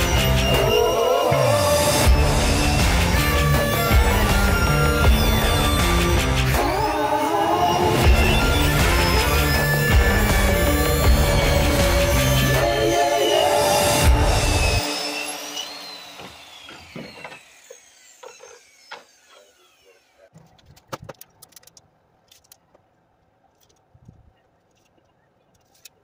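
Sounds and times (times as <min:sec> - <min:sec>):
circular saw winding down: 0:00.0 - 0:20.3.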